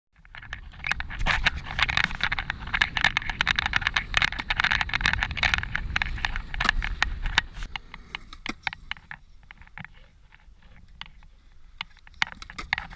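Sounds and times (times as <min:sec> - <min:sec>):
skateboard wheels rolling on concrete: 0:00.1 - 0:12.9.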